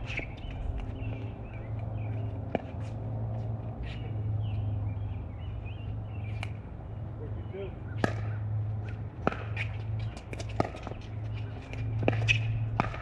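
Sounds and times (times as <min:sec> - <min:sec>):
steady low hum: 0:00.0 - 0:13.0
paddles striking ball: 0:08.0 - 0:08.4, 0:09.2 - 0:11.0, 0:11.7 - 0:13.0.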